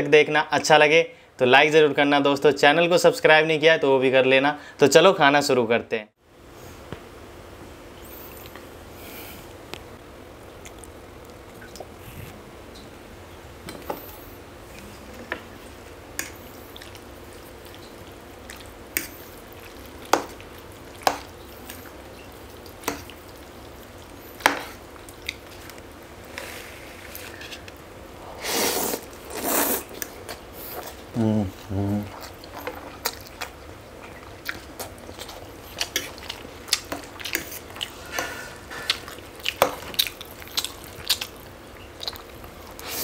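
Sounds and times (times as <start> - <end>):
slurping: 28.3 - 41.4
mouth clicks and chewing smacks: 38.9 - 42.8.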